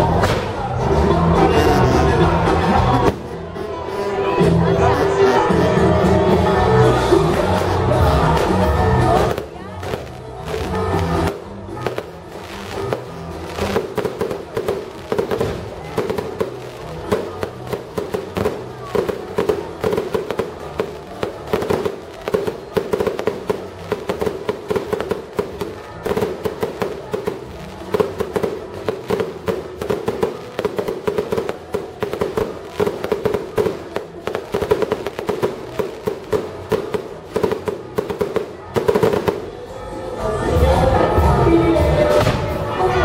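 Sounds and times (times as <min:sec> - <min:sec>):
crowd voices: 0:00.0 - 0:43.0
fireworks crackling and popping: 0:07.0 - 0:39.6.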